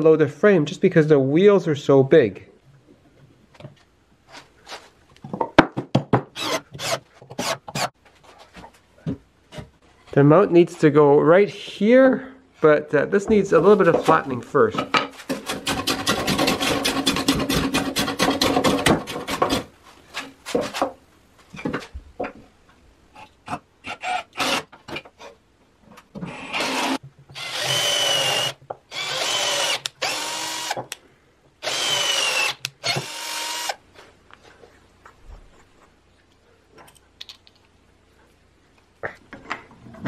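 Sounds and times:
cordless drill boring into wood: 0:06.4 - 0:07.9, 0:26.3 - 0:30.8, 0:31.6 - 0:33.8
wood being planed: 0:15.2 - 0:20.9.

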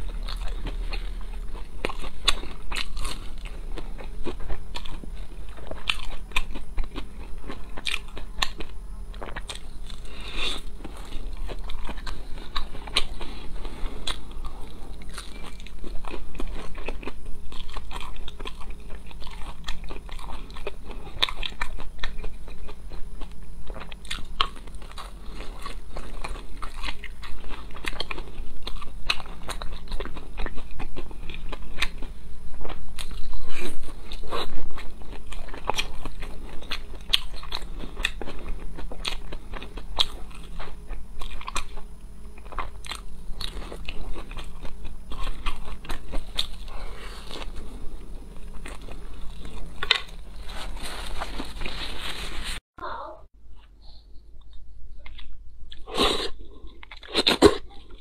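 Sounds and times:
person crunching fried food: 0:00.0 - 0:52.6.

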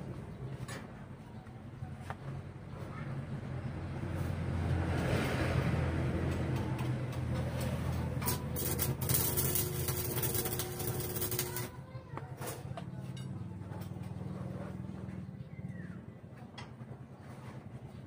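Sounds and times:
vehicle engine rumbling past: 0:02.4 - 0:11.6
welding arc crackling: 0:07.1 - 0:11.7.

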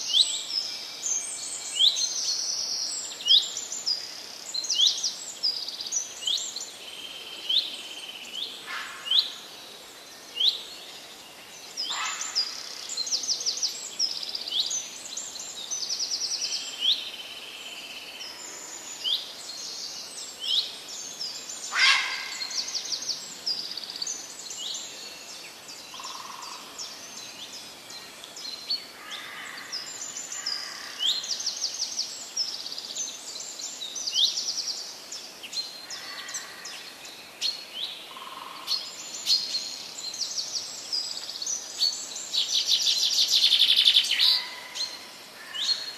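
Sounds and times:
soft background hiss: 0:00.0 - 0:45.9
small birds chirping and trilling: 0:10.2 - 0:45.9.

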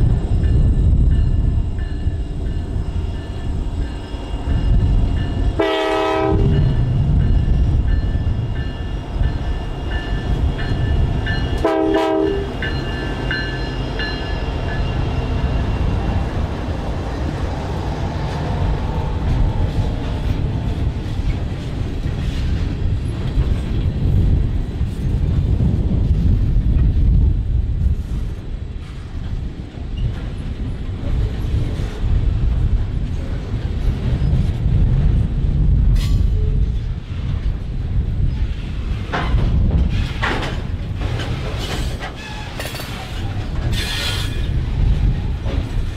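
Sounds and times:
freight train rumbling past: 0:00.0 - 0:45.9
train horn blasts: 0:05.4 - 0:06.8, 0:11.5 - 0:12.9.

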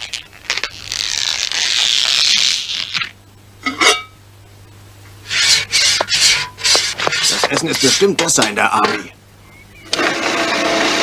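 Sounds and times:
sustained hiss: 0:04.4 - 0:09.8
spatula scraping a frying pan: 0:05.2 - 0:09.1.

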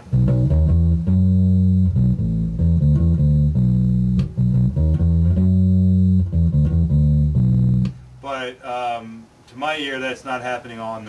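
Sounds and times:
electric bass guitar line: 0:00.0 - 0:08.3.

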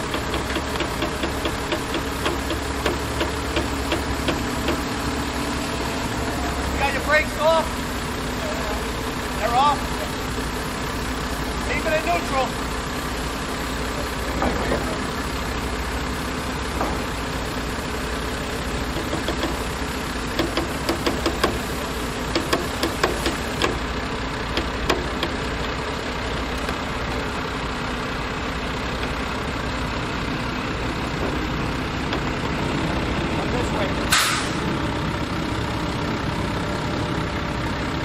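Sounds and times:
sharp clicks and knocks: 0:00.0 - 0:04.9, 0:18.9 - 0:19.7, 0:20.4 - 0:21.7, 0:22.3 - 0:23.8, 0:24.5 - 0:25.4
diesel truck engine idling: 0:00.0 - 0:38.0.

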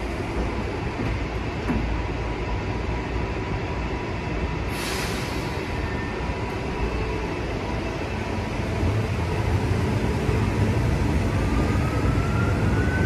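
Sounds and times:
train doors sliding shut: 0:00.0 - 0:02.2
train hum and rumble: 0:00.0 - 0:13.0
air hiss: 0:04.7 - 0:05.7.

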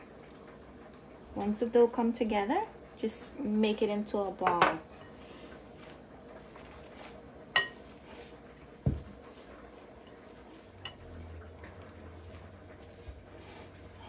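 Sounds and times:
hands kneading dough: 0:05.2 - 0:14.0.

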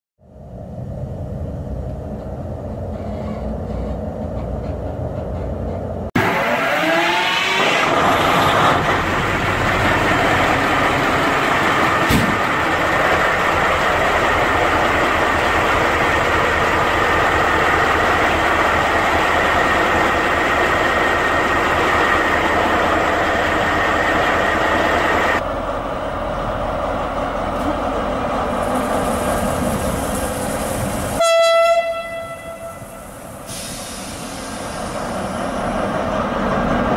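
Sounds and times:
diesel locomotive engine: 0:00.2 - 0:36.9
rising engine whines: 0:06.1 - 0:29.1.

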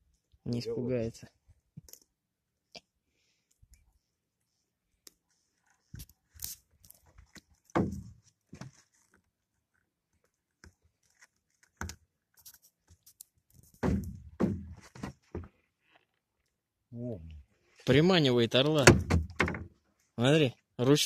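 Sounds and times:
fishing net mesh rustling: 0:05.3 - 0:09.8.

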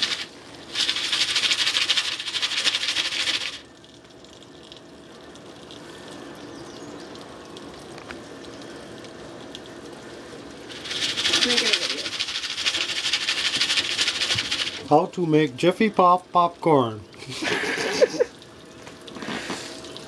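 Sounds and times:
popcorn pan rattling: 0:00.0 - 0:03.6, 0:10.7 - 0:14.9.

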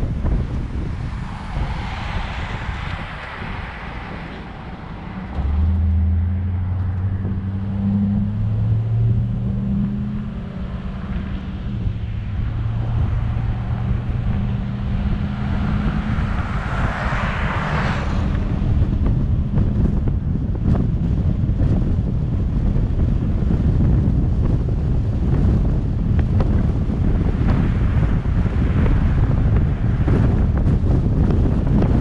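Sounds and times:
passing car: 0:00.0 - 0:32.0
road and wind noise: 0:00.0 - 0:32.0
truck engine under load: 0:02.3 - 0:22.3.

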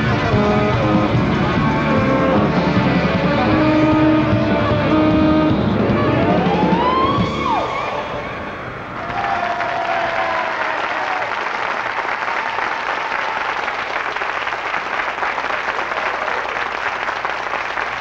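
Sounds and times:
song music: 0:00.0 - 0:09.0
studio audience applauding: 0:08.9 - 0:18.0.

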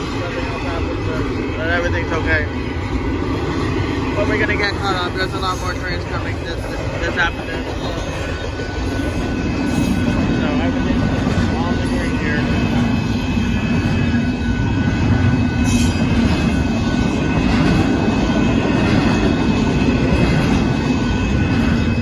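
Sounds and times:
train wheels rumbling on rail: 0:00.0 - 0:22.0.

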